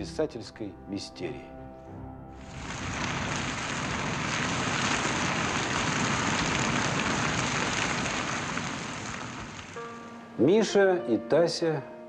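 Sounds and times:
crackling flames: 2.4 - 10.2.

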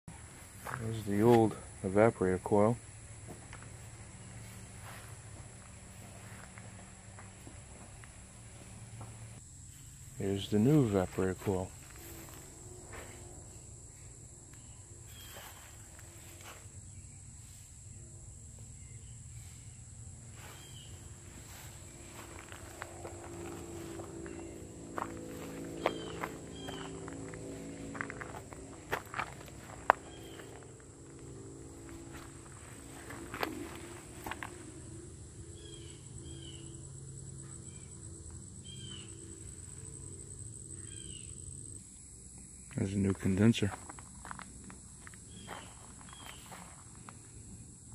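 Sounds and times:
low steady hum: 0.1 - 43.0
high-pitched insect drone: 0.5 - 43.6
faint rustles of movement: 3.5 - 13.6, 19.3 - 34.7
bird chirps: 14.6 - 15.8, 20.4 - 22.3, 23.5 - 27.2, 30.0 - 30.7, 35.6 - 36.8, 38.6 - 39.3
low rumble: 20.9 - 36.0.

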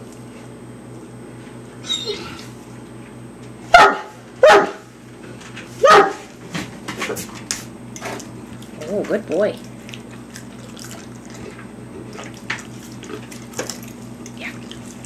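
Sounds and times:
dog barking: 3.7 - 4.9, 5.8 - 6.3.

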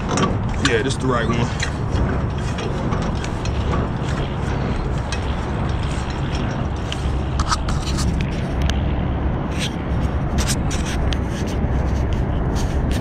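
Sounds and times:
diesel truck idling: 0.0 - 9.4.

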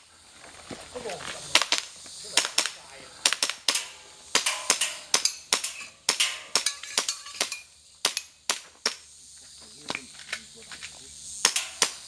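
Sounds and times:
airsoft pistol cracks: 1.7 - 9.0, 11.4 - 12.0.

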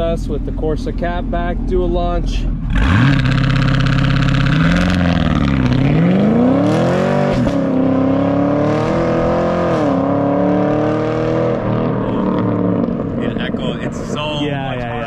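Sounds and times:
transmission upshifts: 0.0 - 15.0
car engine revving and accelerating: 2.6 - 15.0.

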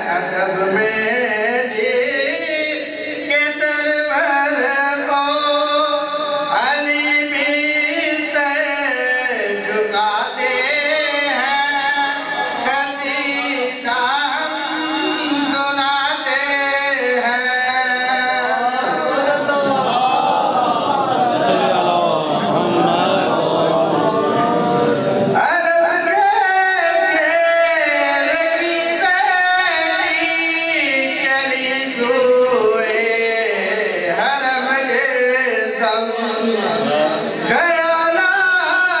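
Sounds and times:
man singing into a microphone: 0.0 - 19.9, 21.6 - 39.0.

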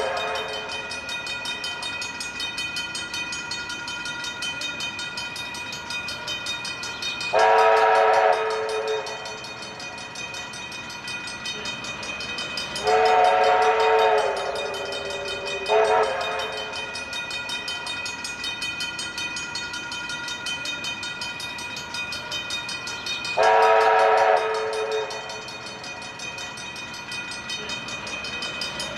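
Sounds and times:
steam locomotive whistle: 0.0 - 0.7, 7.3 - 9.3, 12.8 - 16.8, 23.4 - 25.4
crossing warning bells ringing: 0.0 - 28.9.

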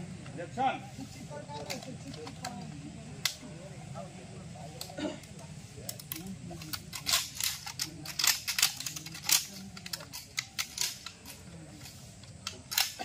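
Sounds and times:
rifle mechanisms clicking: 1.5 - 3.5, 4.8 - 13.0.

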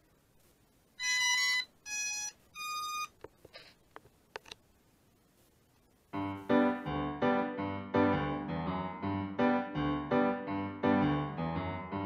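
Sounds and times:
piano music: 6.2 - 12.0.

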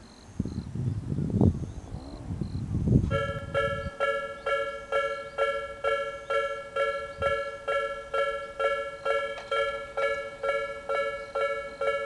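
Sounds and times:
low rumble: 0.5 - 4.0
level crossing electronic bell: 3.1 - 12.0.

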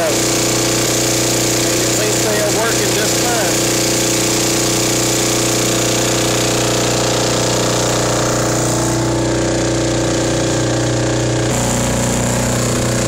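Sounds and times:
small engine running at speed: 0.0 - 13.0.

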